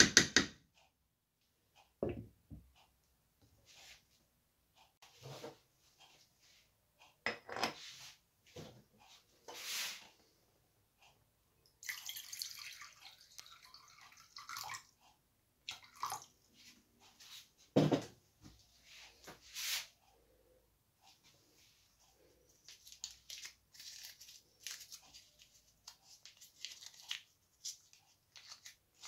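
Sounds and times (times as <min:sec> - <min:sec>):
kitchenware knocks and clinks: 0:07.3 - 0:07.8, 0:17.8 - 0:18.1
water pouring into saucepan: 0:11.8 - 0:14.9, 0:15.7 - 0:16.3.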